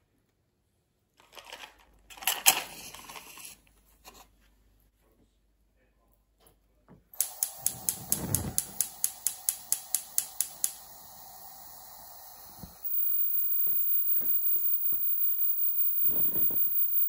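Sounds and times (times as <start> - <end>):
gas burner hissing: 7.1 - 17.0
gas igniter clicking rapidly: 7.2 - 12.9.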